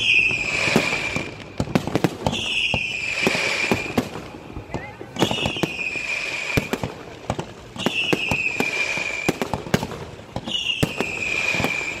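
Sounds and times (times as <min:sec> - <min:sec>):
high descending firework hiss: 0:00.0 - 0:07.0.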